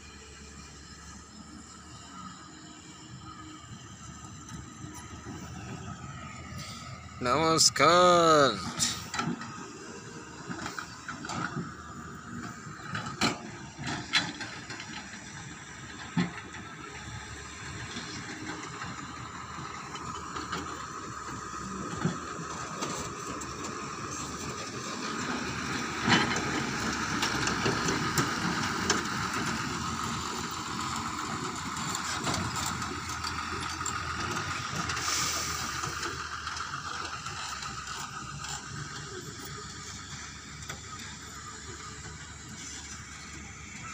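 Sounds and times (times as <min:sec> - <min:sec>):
diesel engines running: 0:00.0 - 0:43.9
lorry passing: 0:04.6 - 0:12.7.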